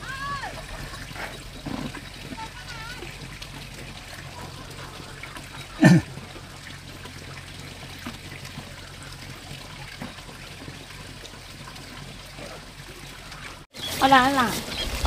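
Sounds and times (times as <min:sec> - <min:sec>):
water trickling: 0:00.0 - 0:15.0.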